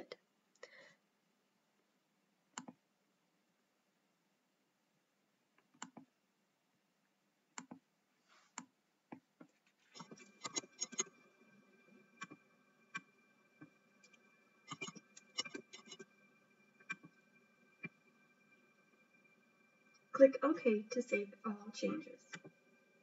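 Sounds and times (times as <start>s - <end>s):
computer mouse clicks: 2.5s - 2.8s, 5.6s - 6.1s, 7.6s - 7.8s, 10.0s - 11.2s, 12.2s - 16.0s
faint steady tone: 9.9s - 23.0s.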